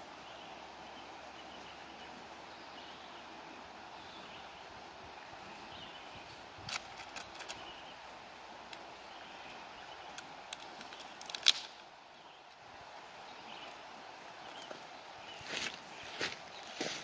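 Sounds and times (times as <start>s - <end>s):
outdoor background noise: 0.0s - 17.0s
sharp clicks and snaps: 6.7s - 7.6s, 10.1s - 11.8s.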